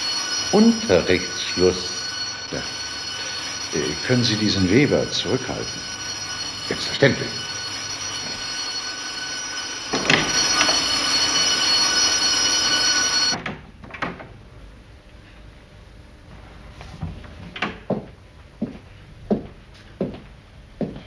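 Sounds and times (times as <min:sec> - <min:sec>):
electric school bell ringing: 0:00.0 - 0:13.4.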